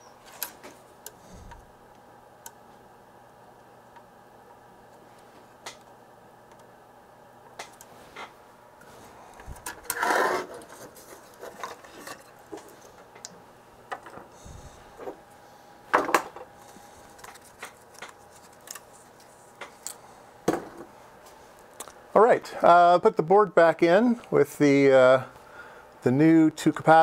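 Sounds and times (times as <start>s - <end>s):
faint steady hum: 0.0s - 27.0s
rustling scrape: 7.9s - 12.3s.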